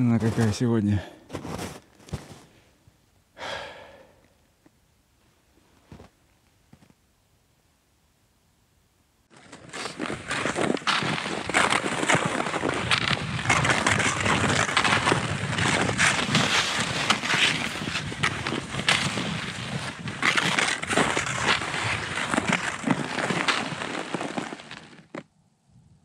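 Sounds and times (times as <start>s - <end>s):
skis crunching on hard snow: 0.0s - 0.6s, 1.3s - 2.6s, 9.3s - 25.3s.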